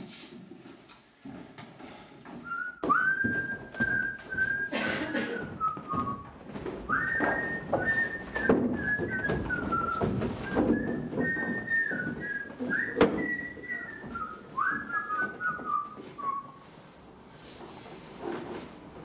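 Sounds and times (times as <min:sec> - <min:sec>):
person whistling a tune: 0:02.5 - 0:16.6
scuffling and thuds: 0:05.6 - 0:16.4.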